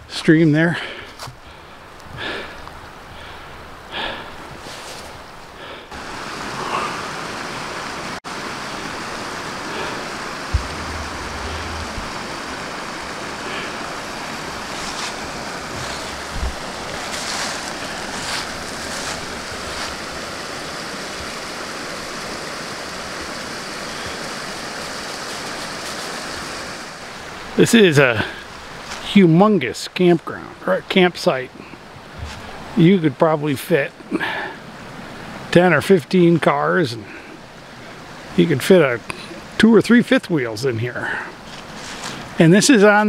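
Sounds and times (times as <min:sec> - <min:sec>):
creek rushing over rocks: 0:02.4 - 0:29.7
low rumble: 0:10.5 - 0:13.1.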